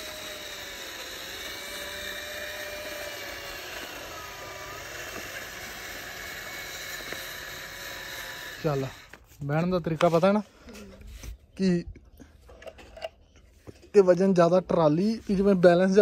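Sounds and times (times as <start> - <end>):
toy tractor motor whining: 0.0 - 9.2.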